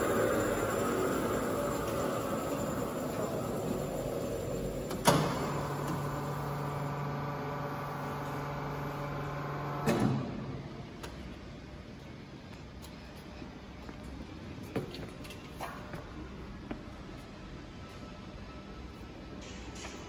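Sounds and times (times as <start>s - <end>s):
motor humming: 0.0s - 10.0s
machine clunk: 1.7s - 6.2s.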